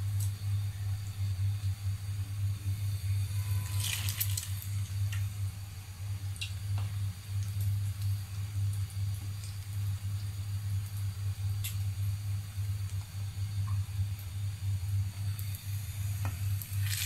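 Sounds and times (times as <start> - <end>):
low hum: 0.0 - 8.4
bread crackling in hot oil: 0.0 - 17.0.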